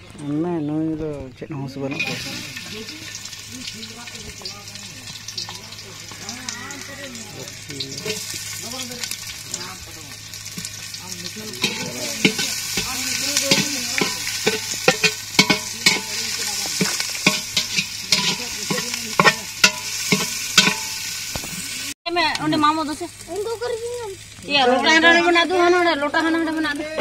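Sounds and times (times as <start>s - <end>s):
onions sizzling in hot oil: 1.3s - 27.0s
spoon scraping against pot: 11.6s - 21.0s.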